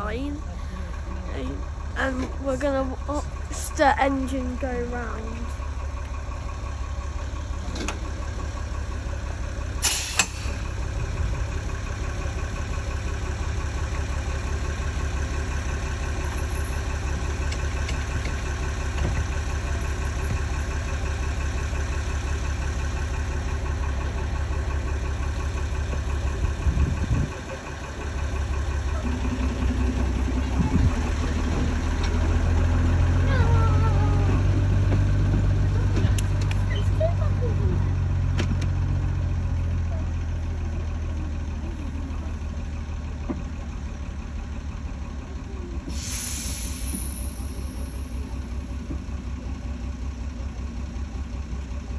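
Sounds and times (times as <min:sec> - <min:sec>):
diesel engine idling: 0:00.0 - 0:51.9
sharp clank: 0:09.8 - 0:10.6.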